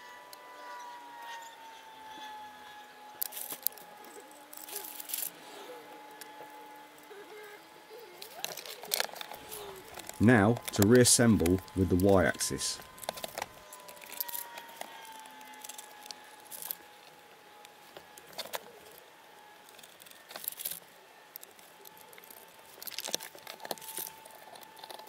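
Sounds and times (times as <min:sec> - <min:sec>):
plastic wrapping rustling: 0:03.2 - 0:05.6, 0:08.0 - 0:25.0
metal parts clinking: 0:04.5 - 0:05.4, 0:12.8 - 0:16.8.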